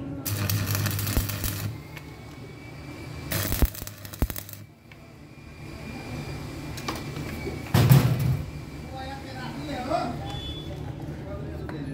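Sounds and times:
welding arc crackling and humming: 0.0 - 2.4, 3.2 - 5.0.

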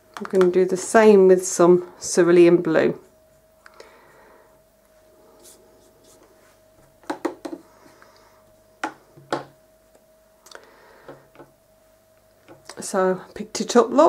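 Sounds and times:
faint steady hum: 0.0 - 14.0
brush tapping on plastic palette: 7.0 - 7.6.

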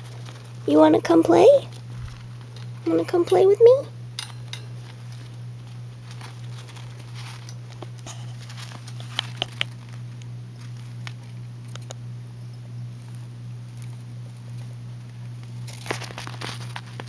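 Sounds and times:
steady low hum: 0.0 - 17.0
hamster scrabbling on plastic: 4.8 - 11.9.

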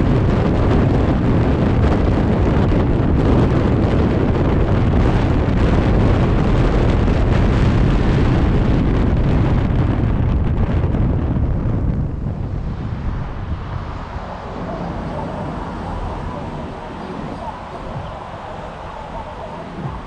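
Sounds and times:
vehicle road noise: 0.0 - 20.0
wind buffeting microphone: 0.0 - 20.0.

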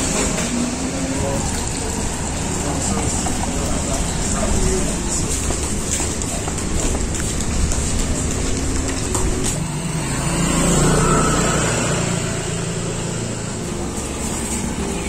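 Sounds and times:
vehicle engine passing by: 9.0 - 15.0.

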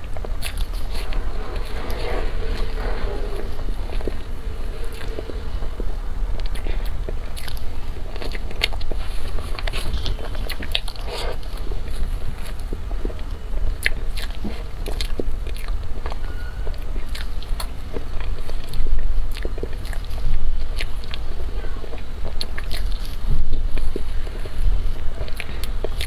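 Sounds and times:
low steady hum: 0.0 - 26.0
chewing mouth sounds: 21.9 - 26.0.

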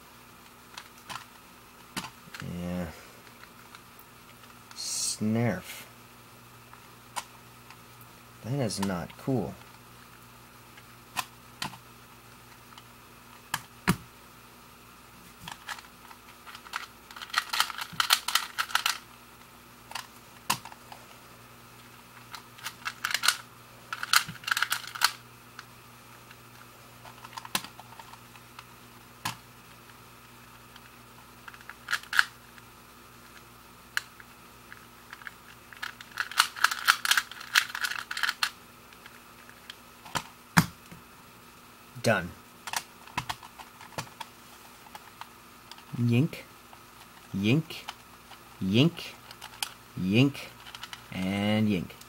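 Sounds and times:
puzzle cube clicking: 15.4 - 19.0, 19.9 - 20.8, 22.2 - 25.7, 27.1 - 29.4, 30.7 - 32.3, 34.0 - 39.2, 50.6 - 51.1.

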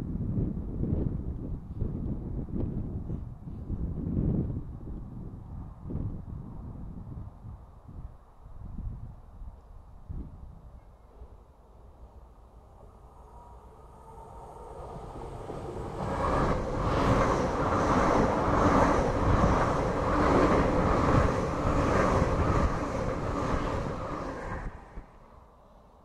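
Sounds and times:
train passing at speed: 11.1 - 26.0
rhythmic wheel and rail noise: 12.2 - 25.2.

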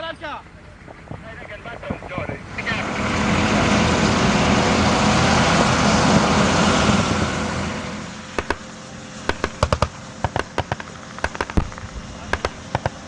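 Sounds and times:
vehicle engine driving: 0.6 - 13.0
small-arms gunfire: 8.4 - 8.7, 9.3 - 13.0.

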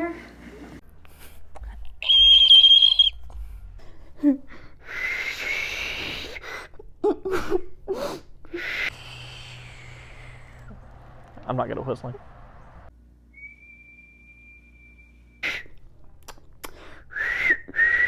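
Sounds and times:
high hand whistle: 2.0 - 3.4, 4.9 - 6.4, 13.3 - 15.7, 17.1 - 18.0.

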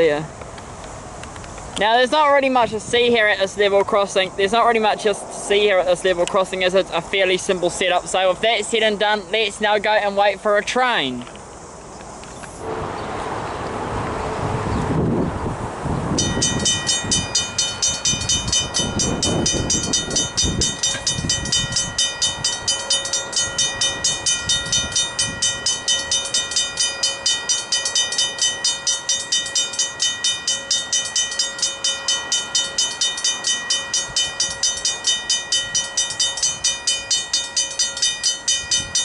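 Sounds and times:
level crossing bell ringing: 16.2 - 39.0.

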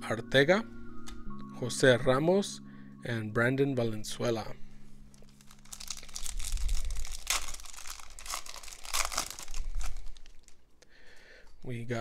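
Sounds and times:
wrapper crinkling and tearing: 5.1 - 10.7.

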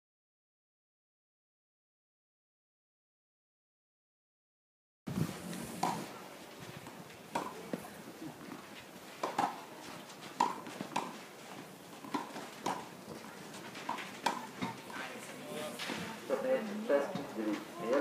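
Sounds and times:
racquets striking tennis ball: 5.8 - 6.1, 7.3 - 7.9, 9.2 - 15.0
tennis ball bouncing: 5.8 - 6.1, 6.8 - 8.6, 9.2 - 15.0, 17.1 - 18.0.

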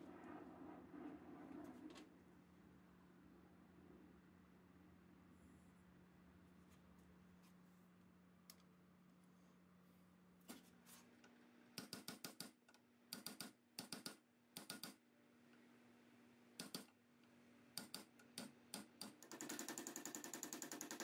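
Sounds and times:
clusters of sharp clicks: 11.8 - 15.0, 16.6 - 17.0, 17.8 - 21.0
small machine rattling: 19.2 - 21.0.

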